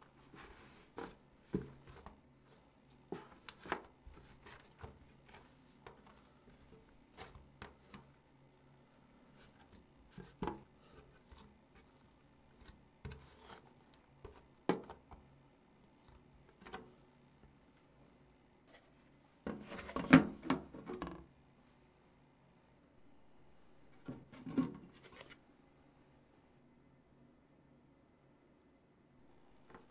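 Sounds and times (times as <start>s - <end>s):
dough rubbing against plastic: 0.0s - 16.8s.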